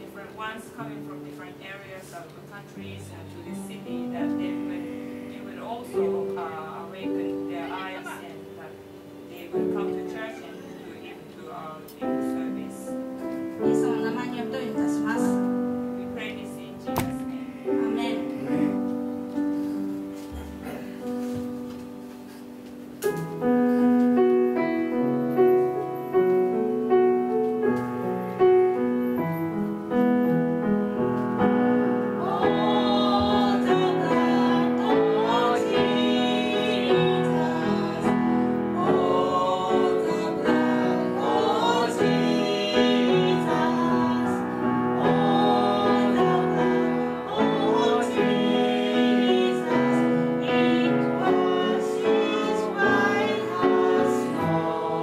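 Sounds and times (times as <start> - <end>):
grand piano playing: 0.0 - 55.0
woman singing with vibrato: 32.2 - 55.0.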